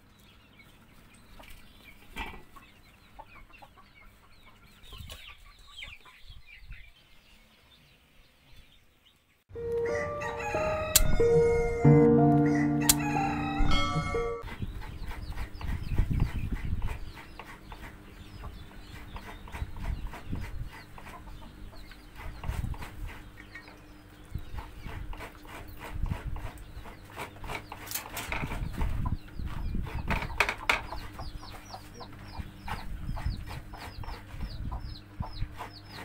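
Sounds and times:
chickens clucking: 0.1 - 7.1, 9.6 - 36.0
musical sting of held chords: 9.5 - 14.4.

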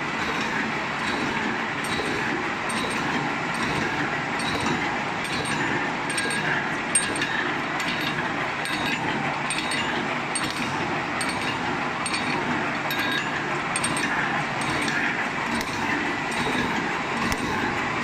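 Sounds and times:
welding machine clattering: 0.0 - 18.0
metallic clinks: 4.4 - 15.0.

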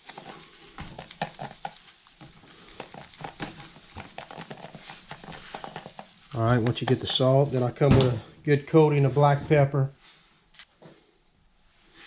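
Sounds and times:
salt pouring onto meat: 0.0 - 7.2
hands rubbing meat: 0.0 - 7.8.

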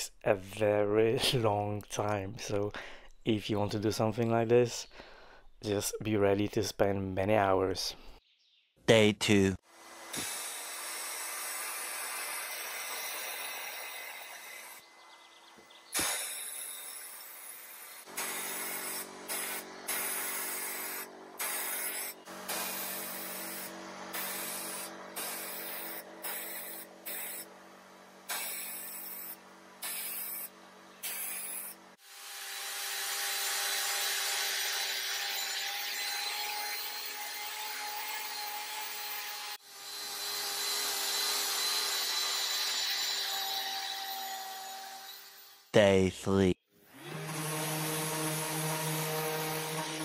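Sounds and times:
drill whining: 9.7 - 14.9, 15.5 - 45.7, 46.8 - 50.0
sandblaster hissing blasts: 10.0 - 14.8, 15.9 - 27.5, 28.2 - 32.4
machine hum: 17.9 - 32.0.

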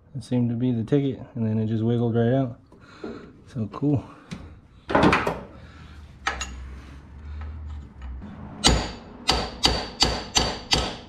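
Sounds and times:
hammer striking metal punch: 8.6 - 11.0.

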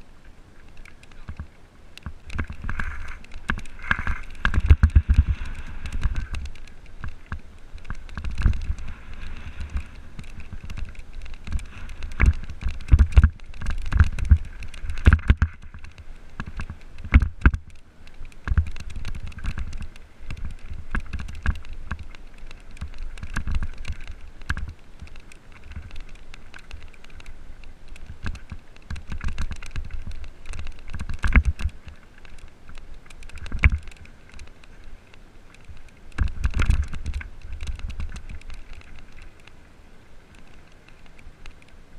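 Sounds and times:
bike knocking and thudding on bumps: 2.0 - 17.7
bike rattling: 2.0 - 34.8, 35.5 - 39.6.

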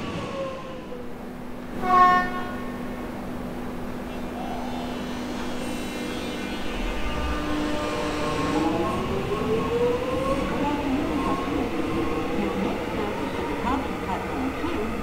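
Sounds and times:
electric train drive humming: 0.0 - 15.0
rising whine of accelerating train: 0.0 - 15.0
train horn toot: 1.8 - 2.9, 5.0 - 8.9.

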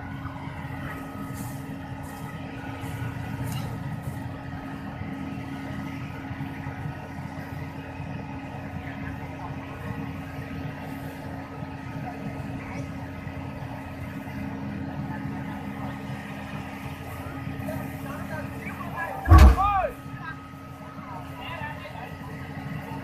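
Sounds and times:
excavator diesel engine running: 0.0 - 21.1
steady hum: 19.3 - 20.0.

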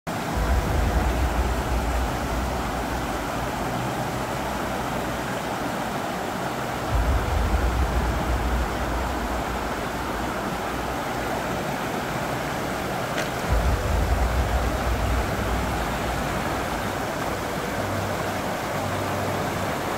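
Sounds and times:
flowing water rushing: 0.1 - 19.9
deep low rumble: 0.2 - 4.1, 6.9 - 11.2, 13.4 - 18.1.

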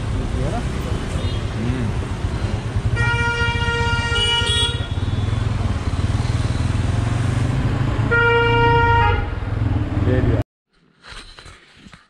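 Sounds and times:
motorcycle rumble: 0.0 - 10.4
road traffic: 0.0 - 10.4
vehicle horn blasts: 2.9 - 5.4, 8.1 - 9.4.

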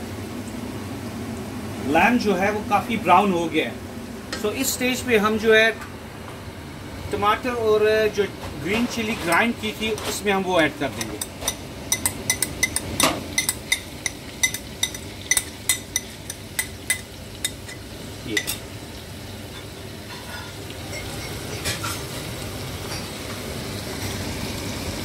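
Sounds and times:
meat sizzling in a pot: 8.3 - 25.0
spoon tapping on ceramic plate: 11.0 - 17.8.

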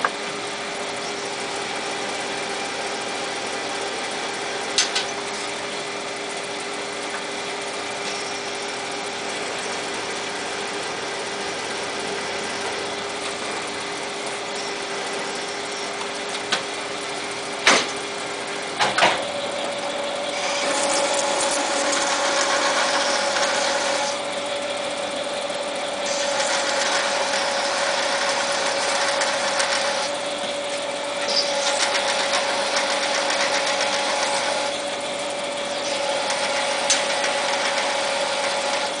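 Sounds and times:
lathe machine hum: 0.0 - 39.0
lathe cutting steel: 20.0 - 39.0.

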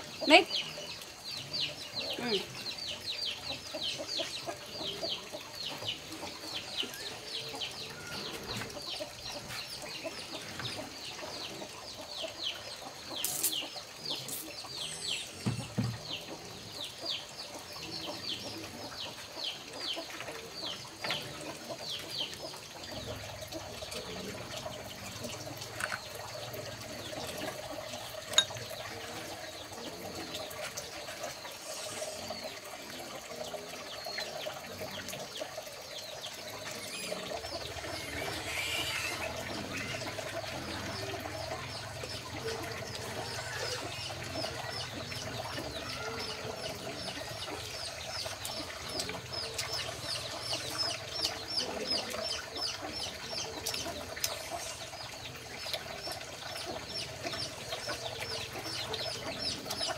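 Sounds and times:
chicks peeping: 2.8 - 23.1, 36.8 - 59.9.

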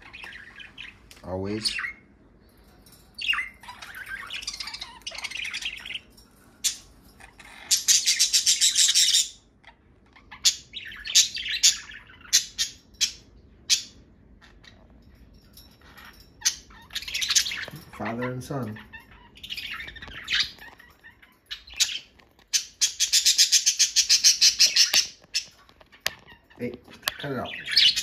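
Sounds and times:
budgerigars chattering: 3.2 - 14.7, 16.4 - 28.0.

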